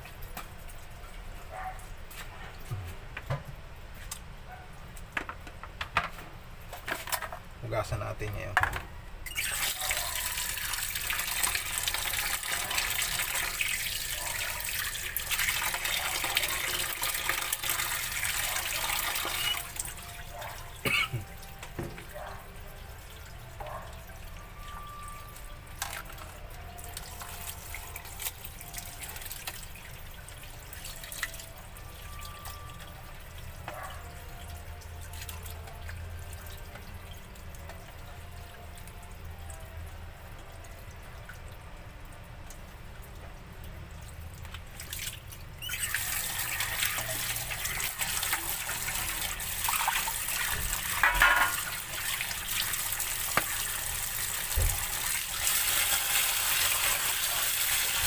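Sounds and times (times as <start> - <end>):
clinks and knocks on counter: 8.6 - 8.9, 51.0 - 51.6
tap water running into metal tray: 9.3 - 22.1, 24.6 - 31.5, 44.4 - 58.0.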